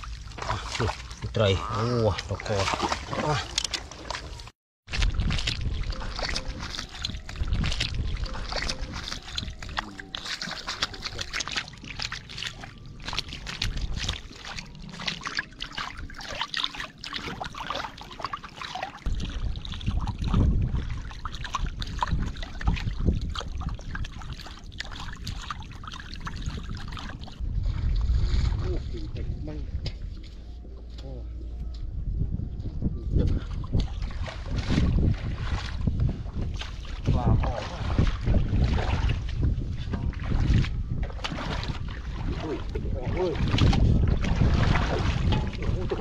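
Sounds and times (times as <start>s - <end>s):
fish splashing in water: 0.0s - 27.4s, 40.1s - 46.0s.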